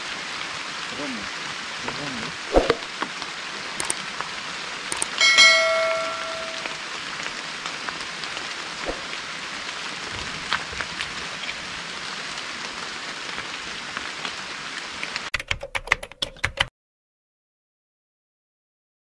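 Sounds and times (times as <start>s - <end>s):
steady rain: 0.0s - 15.3s
sharp clicks: 3.8s - 4.0s, 4.9s - 5.2s
metallic ringing tone: 5.2s - 6.8s.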